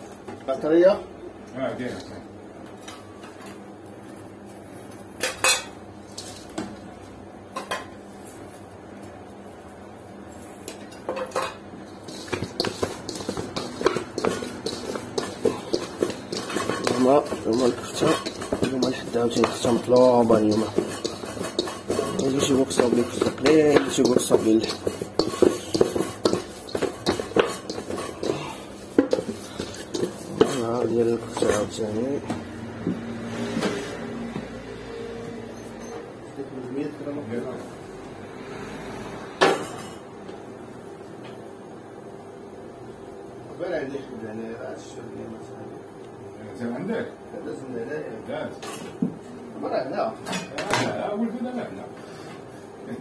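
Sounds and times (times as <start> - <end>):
meat slapping in a metal bowl: 11.3 - 32.2.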